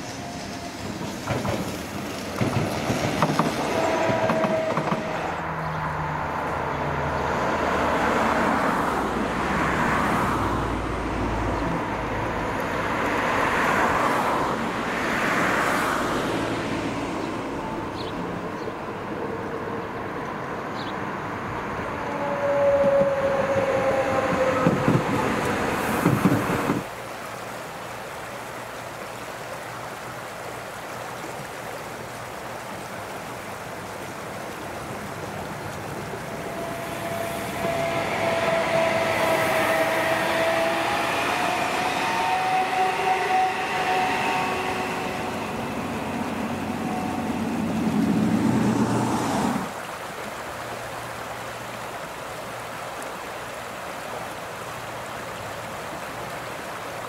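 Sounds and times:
electric railcar passing: 0.0 - 27.0, 33.7 - 49.8.

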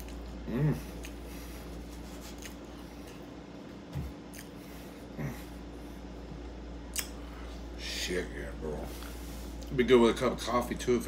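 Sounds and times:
person chewing food: 0.0 - 5.8, 6.4 - 7.4
person humming: 0.4 - 1.1.

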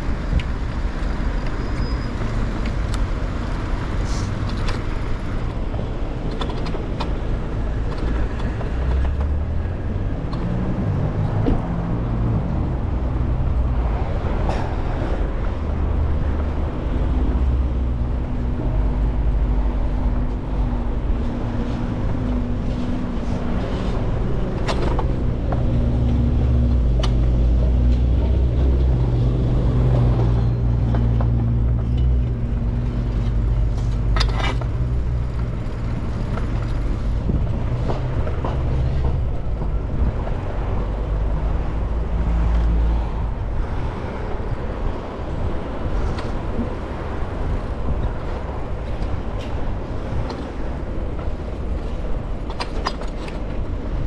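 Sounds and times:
traffic: 0.0 - 54.0
wind rumble on microphone: 0.0 - 54.0.

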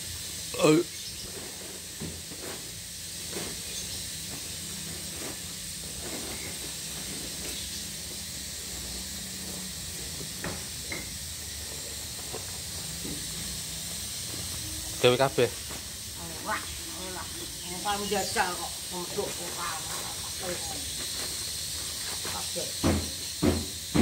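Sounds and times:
high-pitched hiss: 0.0 - 24.0
soft footsteps and scuffs: 20.9 - 22.6.

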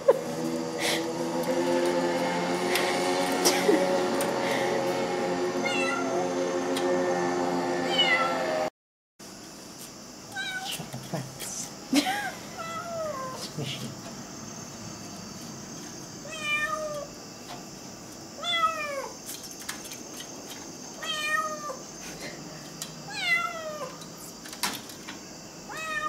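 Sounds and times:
cat meowing: 5.6 - 6.2, 7.9 - 8.4, 10.3 - 10.8, 12.6 - 13.4, 16.2 - 17.1, 18.4 - 19.1, 21.0 - 21.8, 23.1 - 24.0, 25.7 - 26.0.

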